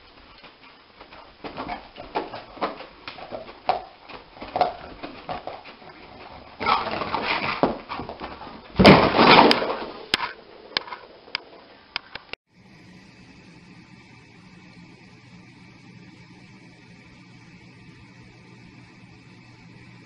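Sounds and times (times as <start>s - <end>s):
dog paws scrabbling: 0.0s - 11.7s.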